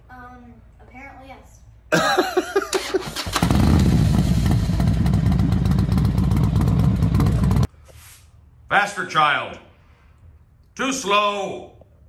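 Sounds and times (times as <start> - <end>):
motorcycle engine running: 3.0 - 7.7.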